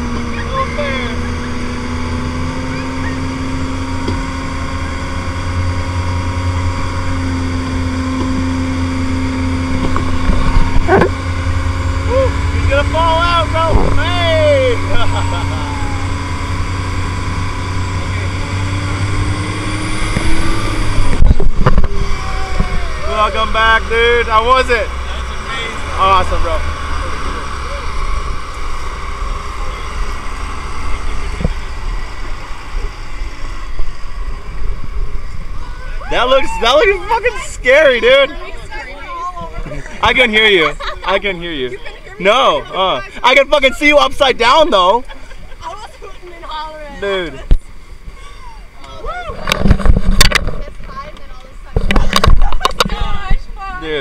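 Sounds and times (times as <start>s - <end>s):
motorboat engine droning: 0.0s - 54.0s
wind rumble on microphone: 1.2s - 12.7s, 13.5s - 14.2s, 16.0s - 23.1s, 49.0s - 53.6s
short wavering cry: 12.0s - 12.6s, 14.1s - 16.6s, 48.1s - 49.4s.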